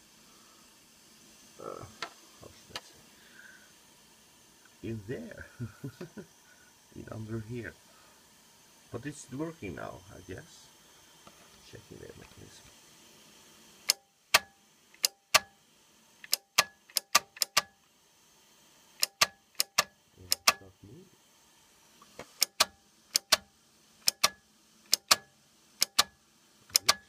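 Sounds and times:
tape deck mechanism clicking: 13.8s - 15.6s, 16.2s - 17.8s, 19.0s - 20.6s, 22.2s - 27.0s.

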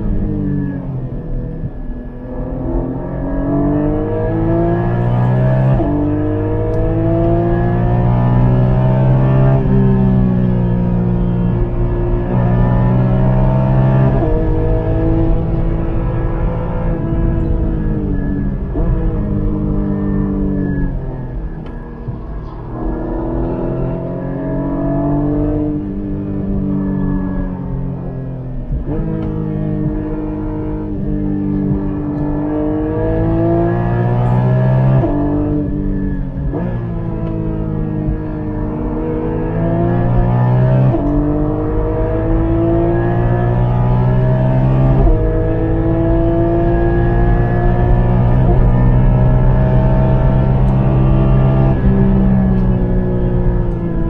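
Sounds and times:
sports car engine accelerating: 0.0s - 54.0s.

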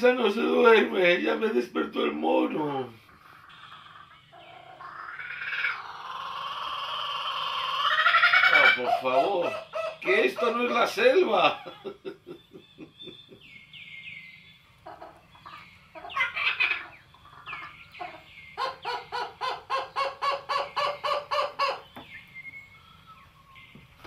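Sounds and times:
rapid clucking calls: 2.9s - 22.4s
high falling chirps: 3.2s - 8.5s.

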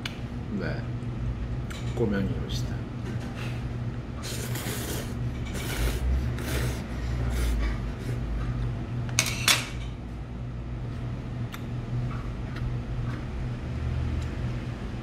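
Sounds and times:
man slurping noodles: 4.2s - 8.2s.

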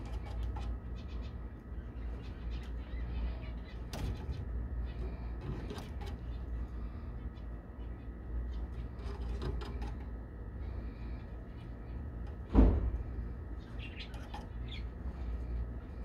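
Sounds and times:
birds clicking and scratching in cage: 0.0s - 16.0s
steady low hum: 0.0s - 16.0s
loud knock: 12.5s - 13.0s.

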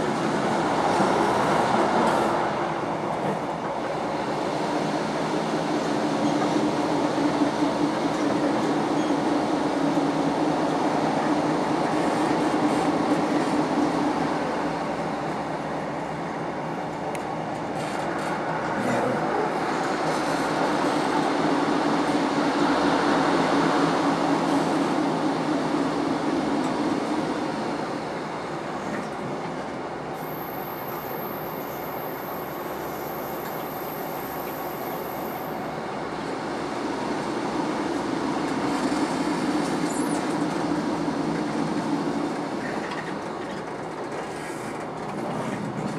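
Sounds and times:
train wheel and track noise: 0.0s - 45.9s.

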